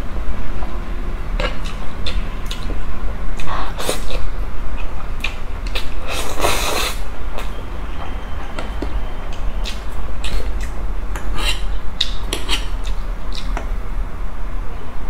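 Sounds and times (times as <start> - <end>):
wet chewing clicks: 1.4 - 2.8, 8.6 - 13.7.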